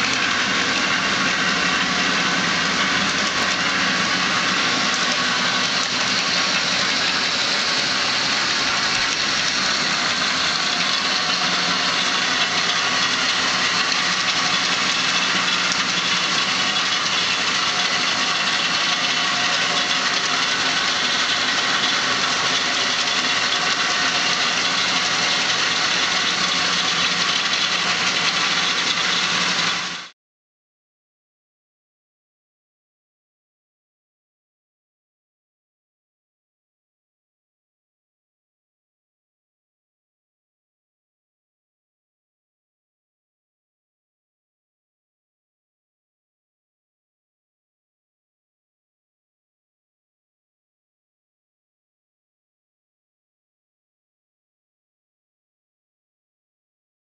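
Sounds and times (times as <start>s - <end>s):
bandsaw running with steady hum: 0.0s - 30.1s.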